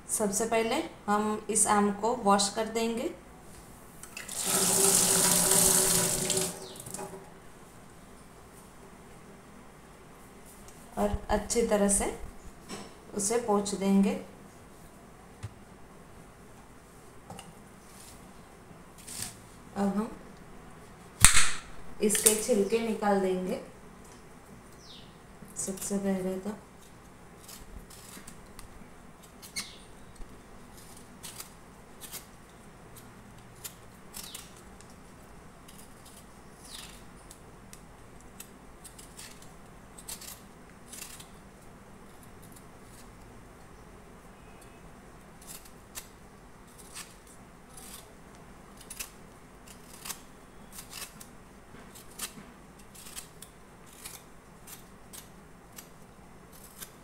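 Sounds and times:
peeler scraping mango skin: 26.7 - 28.6, 29.2 - 35.0, 35.6 - 43.4, 44.4 - 57.0.

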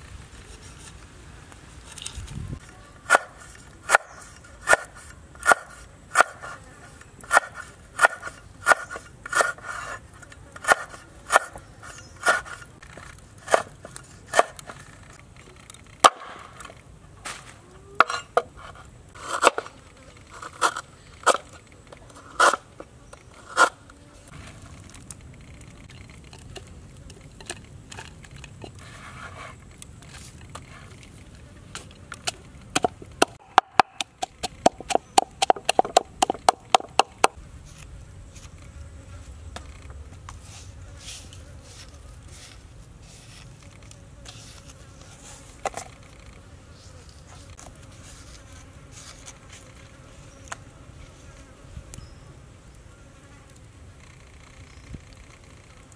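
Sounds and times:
knife chopping on wooden board: 3.9 - 6.6, 7.3 - 9.6, 32.8 - 37.4
pestle pounding in wooden mortar: 32.7 - 37.4.

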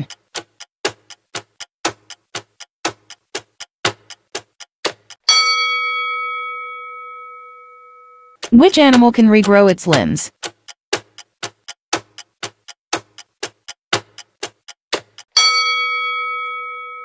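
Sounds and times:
clock ticking: 0.0 - 5.7, 8.4 - 16.6
bell-like chime: 5.3 - 8.4, 15.4 - 17.0.

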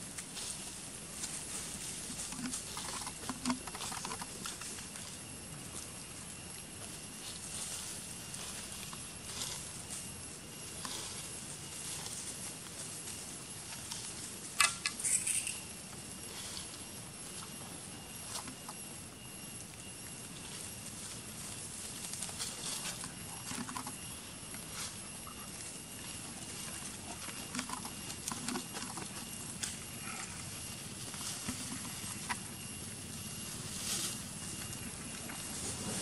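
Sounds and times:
background hiss: 0.0 - 36.0
faint high whine: 0.0 - 36.0
monkeys eating clicks and taps: 1.2 - 5.1, 14.6 - 15.6, 22.0 - 24.6, 25.3 - 32.6.

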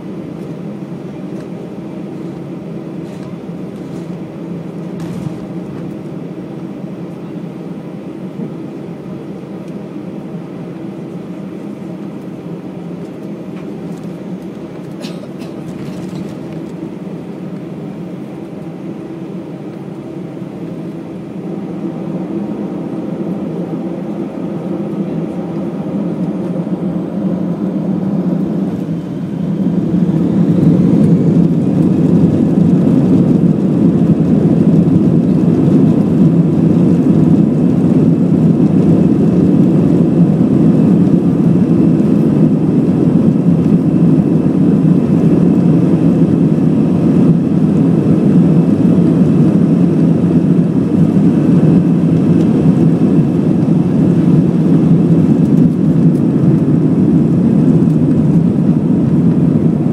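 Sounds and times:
jet engines roaring: 0.0 - 59.9
rising engine whine: 0.0 - 59.9
runway rumble: 11.0 - 49.6.

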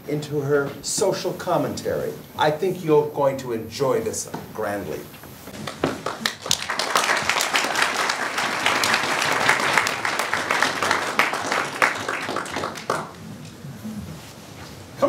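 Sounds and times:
audience applause: 5.6 - 13.2.

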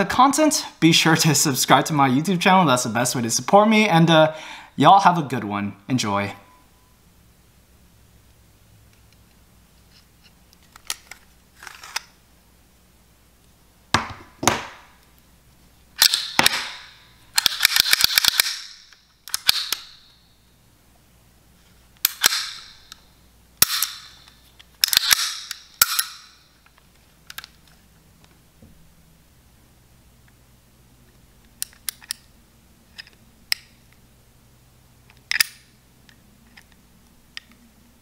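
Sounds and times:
dummy round dropping on mat: 13.9 - 14.9
pistol slide clacking: 16.0 - 20.1, 22.0 - 23.0, 23.6 - 26.4, 35.3 - 35.7.

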